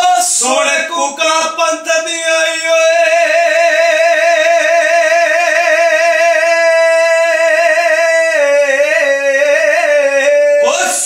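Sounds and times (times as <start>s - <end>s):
person singing long vibrato note: 2.5s - 11.0s.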